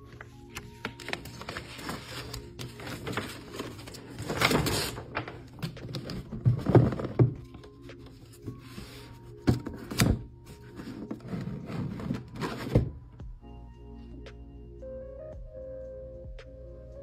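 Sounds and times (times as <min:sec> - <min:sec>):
paper packaging crinkling: 0:00.0 - 0:09.0
box sliding out: 0:10.6 - 0:12.9.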